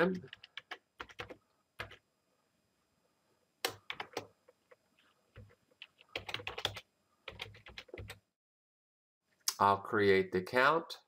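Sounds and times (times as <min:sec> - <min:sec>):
typing on a computer keyboard: 0:00.1 - 0:02.0, 0:03.6 - 0:04.3, 0:05.4 - 0:08.2.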